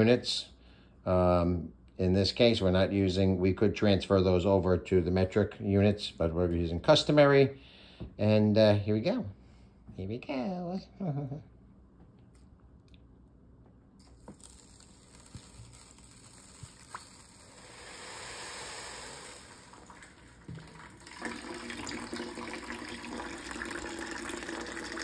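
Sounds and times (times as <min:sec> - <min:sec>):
water pouring onto wet sand: 0:14.0 - 0:25.0
running water: 0:14.1 - 0:25.0.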